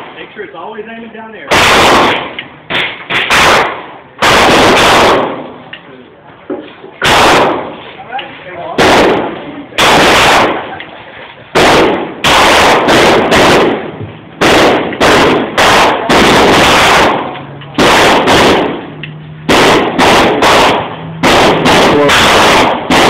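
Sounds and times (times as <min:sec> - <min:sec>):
handgun shots: 0:01.5 - 0:05.4, 0:11.6 - 0:13.8, 0:19.5 - 0:23.0.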